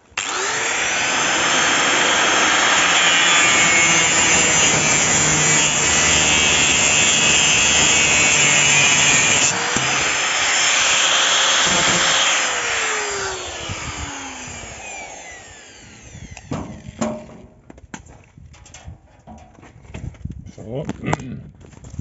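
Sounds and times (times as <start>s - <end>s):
power saw cutting sheet metal: 0.1s - 17.4s
motor winding down whine: 0.2s - 17.0s.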